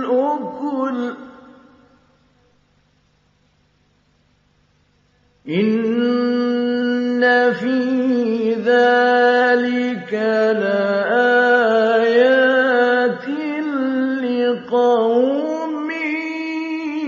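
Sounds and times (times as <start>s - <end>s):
man chanting melodically: 0.0s - 2.0s, 5.5s - 17.0s.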